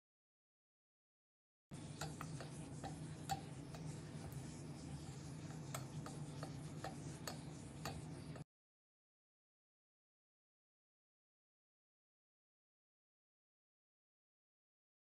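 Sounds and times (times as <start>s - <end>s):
low steady hum: 1.7s - 8.4s
spatula scraping caramel in pot: 1.8s - 8.4s
spatula clicking against pot: 1.9s - 4.4s, 5.5s - 8.4s.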